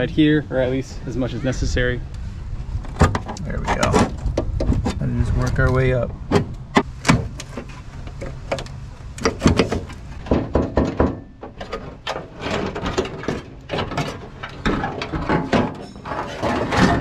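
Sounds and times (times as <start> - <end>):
metal panel knocks and scrapes: 9.2 - 17.0.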